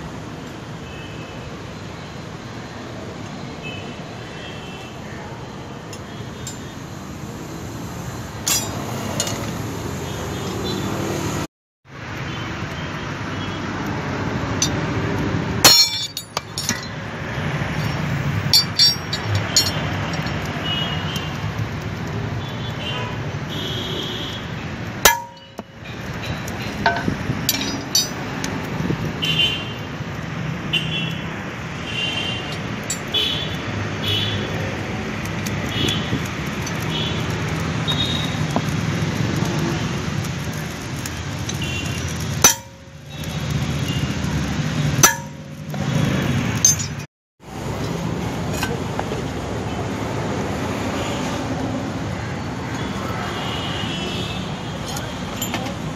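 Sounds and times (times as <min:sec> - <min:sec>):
steady background noise: 0:00.0 - 0:55.9
hammer striking anvil: 0:08.5 - 0:09.5, 0:15.6 - 0:17.0, 0:18.5 - 0:20.3, 0:25.1 - 0:25.7, 0:26.8 - 0:28.2, 0:42.4 - 0:43.0, 0:45.0 - 0:45.8, 0:46.6 - 0:47.1.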